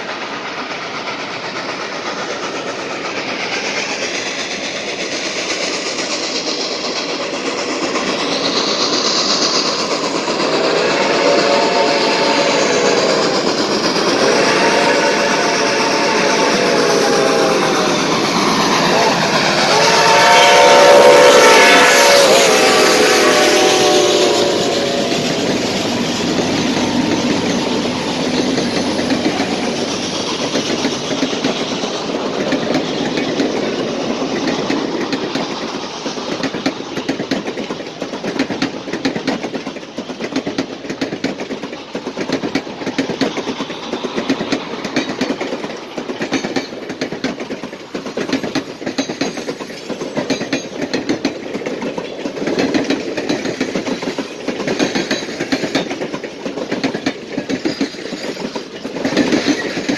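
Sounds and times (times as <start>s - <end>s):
diesel locomotive engines: 0.0s - 59.9s
train wheels clicking over rail joints: 0.0s - 59.9s.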